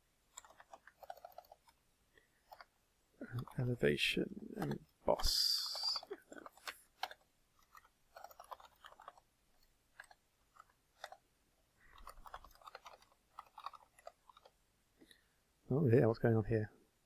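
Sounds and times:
keyboard typing: 0:00.3 - 0:01.8, 0:02.4 - 0:03.7, 0:04.5 - 0:14.6.

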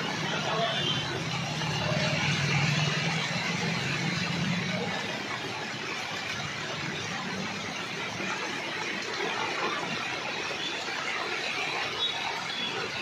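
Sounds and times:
car tyres swishing through water: 0:00.0 - 0:13.0
heavy rain on road: 0:00.0 - 0:13.0.

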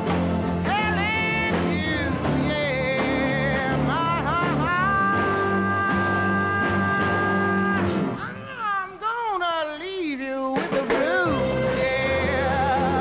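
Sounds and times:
grand piano: 0:00.0 - 0:08.8
band playing soul jazz: 0:00.0 - 0:13.0.

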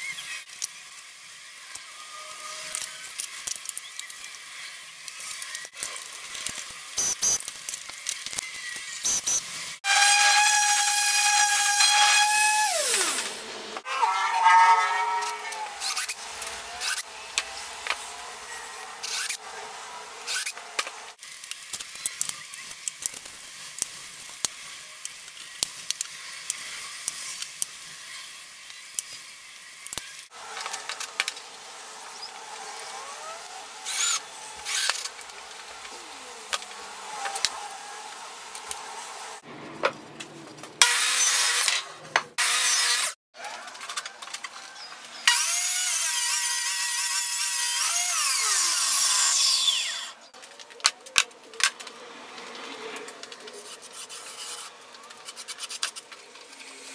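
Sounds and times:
table saw running: 0:09.8 - 0:21.2, 0:30.3 - 0:39.7
cordless drill driving screws: 0:32.8 - 0:35.2.

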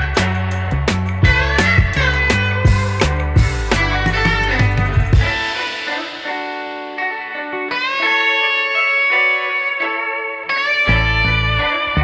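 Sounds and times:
bass line: 0:00.0 - 0:05.9, 0:10.9 - 0:12.0
steady drum beat: 0:00.0 - 0:07.1
guitar: 0:00.0 - 0:12.0.

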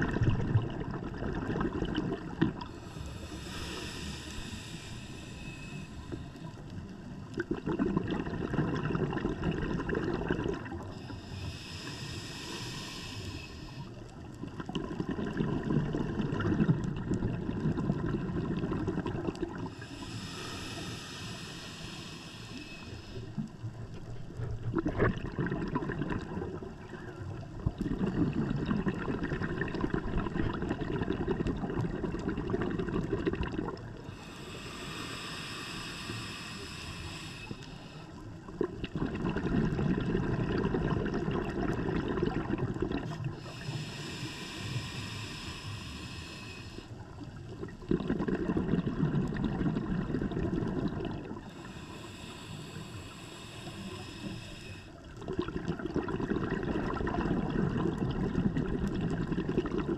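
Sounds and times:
diver exhaling bubbles: 0:00.0 - 0:37.6, 0:38.2 - 0:59.9
regulator inhale hiss: 0:02.5 - 0:07.2, 0:10.8 - 0:14.3, 0:19.6 - 0:24.5, 0:34.0 - 0:38.4, 0:43.0 - 0:47.3, 0:51.4 - 0:55.2.

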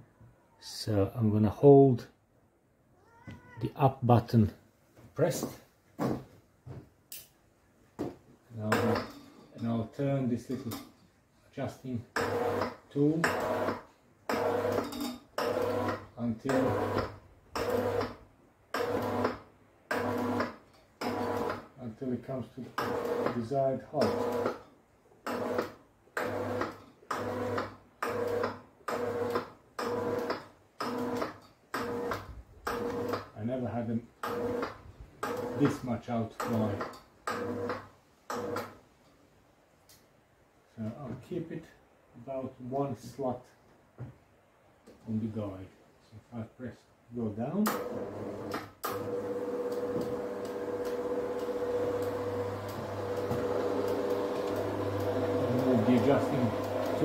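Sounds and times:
roller door motor humming in pulses: 0:12.2 - 0:18.2, 0:18.8 - 0:21.7, 0:22.8 - 0:23.4, 0:24.0 - 0:24.6, 0:25.3 - 0:33.3, 0:34.2 - 0:35.7, 0:36.5 - 0:38.8, 0:47.8 - 0:57.0.

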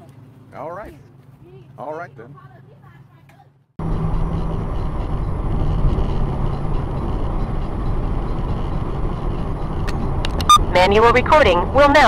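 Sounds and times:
car road and engine noise: 0:00.0 - 0:12.0.

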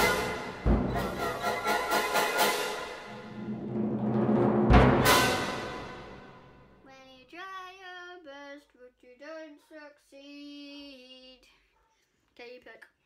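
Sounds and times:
loud drum hit ringing: 0:00.0 - 0:06.7
child singing wordless tune: 0:06.8 - 0:13.0.

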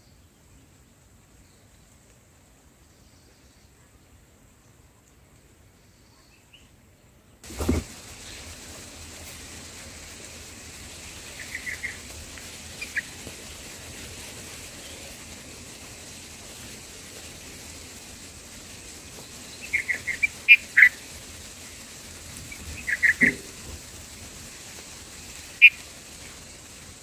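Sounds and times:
faint steady hiss: 0:00.0 - 0:27.0
high bird chirps: 0:11.1 - 0:12.1, 0:19.4 - 0:21.0, 0:22.5 - 0:23.5.

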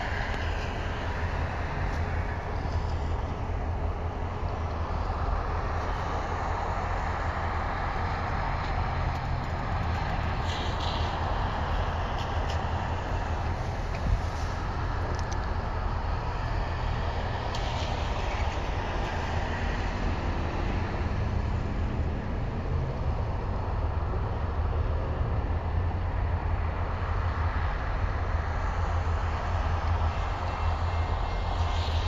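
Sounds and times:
diesel locomotives low rumble: 0:00.0 - 0:32.0.

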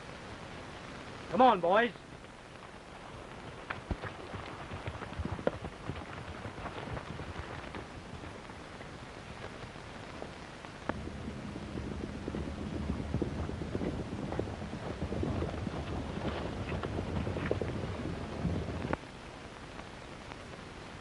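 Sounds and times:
steady hiss: 0:00.0 - 0:21.0
low hum: 0:02.0 - 0:21.0
hoofbeats galloping: 0:03.0 - 0:19.0.

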